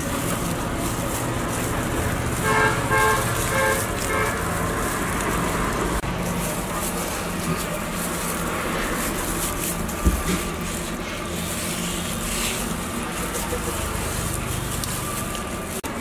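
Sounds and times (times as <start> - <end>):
street traffic noise: 0.0 - 16.0
vehicle horn tooting: 2.3 - 4.6.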